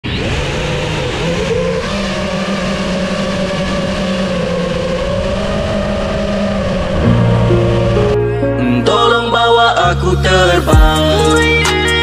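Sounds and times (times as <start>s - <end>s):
drone propellers whining: 0.0s - 9.4s.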